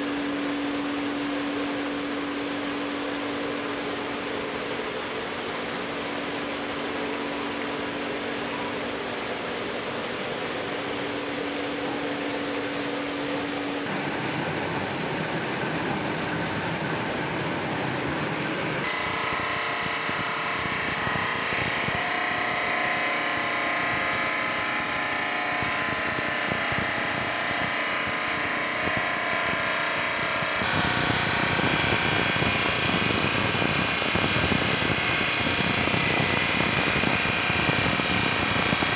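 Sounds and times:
saw grinding through stone: 30.4 - 38.9.

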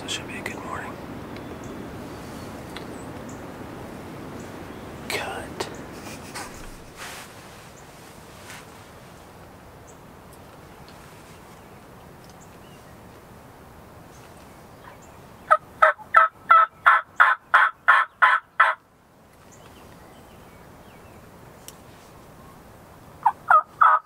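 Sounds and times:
turkey call yelps: 15.5 - 18.8, 23.2 - 24.0.

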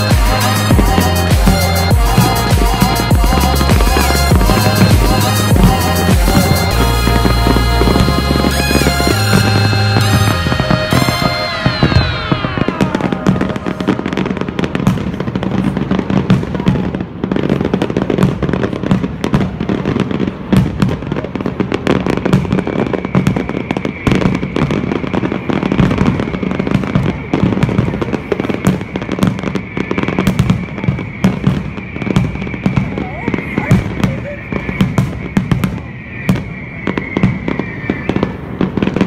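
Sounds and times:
steady high tone: 0.0 - 16.1
fireworks crackling and banging: 0.0 - 39.0.

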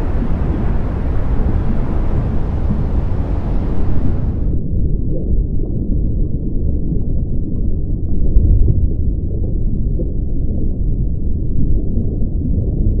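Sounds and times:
deep rumbling noise: 0.0 - 4.6.

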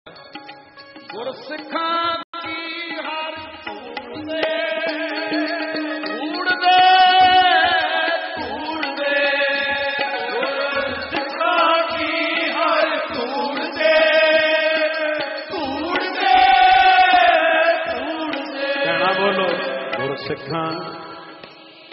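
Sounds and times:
harmonium: 0.1 - 21.9
men singing a hymn: 4.3 - 20.3.

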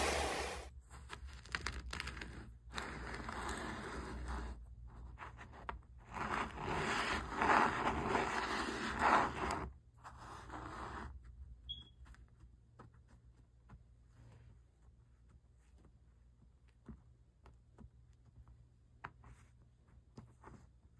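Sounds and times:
sand scraping across a board: 0.0 - 0.7.

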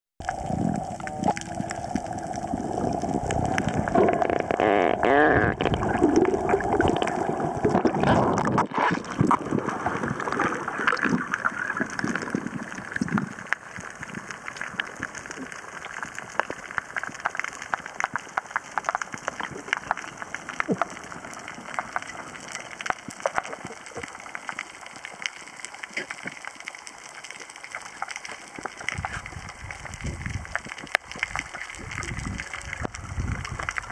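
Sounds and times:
underwater bubbling and gurgling: 0.2 - 33.9
underwater hiss with clicks: 12.9 - 29.8.

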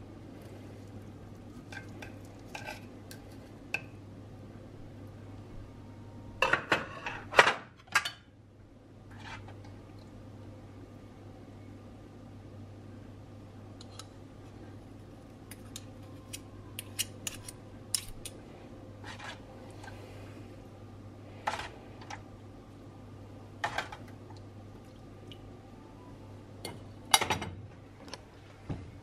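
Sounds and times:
low steady hum: 0.0 - 29.0
soft wet pours: 24.2 - 25.6.

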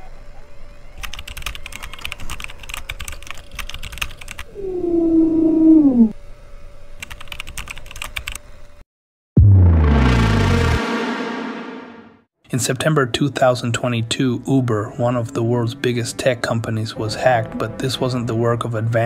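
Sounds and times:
keyboard typing: 1.1 - 4.5, 7.0 - 8.4
loud electronic tone: 9.4 - 12.2.

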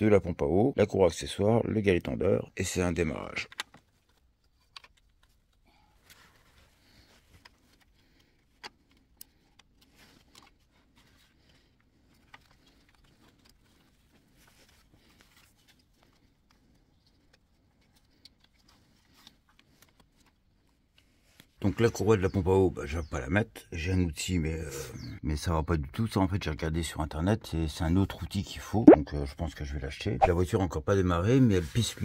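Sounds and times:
light clicks and taps: 3.5 - 5.6.

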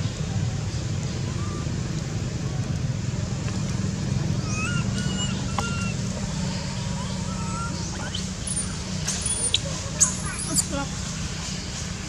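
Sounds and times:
low rumble of motor traffic: 0.0 - 12.0
high whistled calls: 1.1 - 1.8, 4.4 - 10.8.

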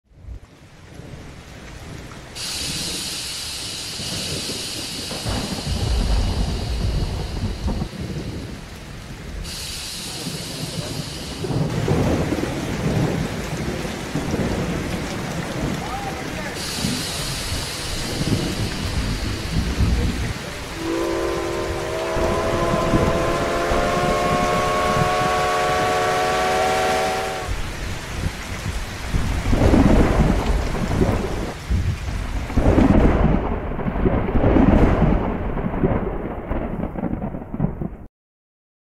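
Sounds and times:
rain hissing: 0.2 - 37.2
rumbling thunder crashes: 4.0 - 8.7, 10.2 - 38.1
steam locomotive whistle: 20.6 - 27.6.

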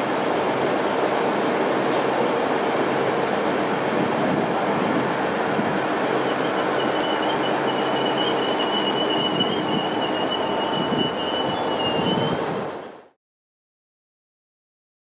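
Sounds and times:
train coaches rolling past: 0.0 - 13.1
high wheel squeal: 5.6 - 12.5.

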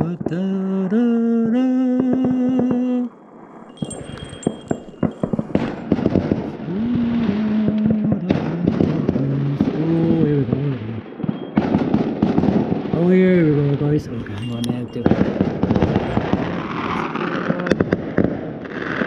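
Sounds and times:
man humming: 0.0 - 3.1, 6.4 - 11.1
fireworks banging and popping: 0.0 - 19.0
fireworks crackling: 0.0 - 19.0.

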